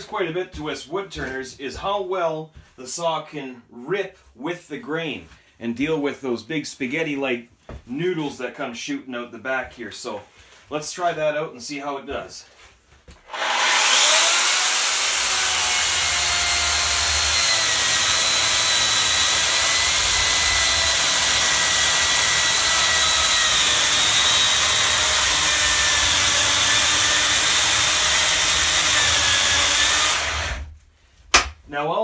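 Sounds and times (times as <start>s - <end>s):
electric chainsaw cutting log: 13.3s - 30.7s.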